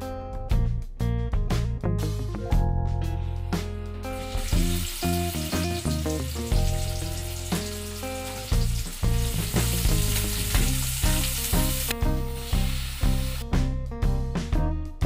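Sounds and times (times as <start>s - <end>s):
background music with steady beat: 0.0s - 15.0s
onion sizzling in hot oil: 4.0s - 13.4s.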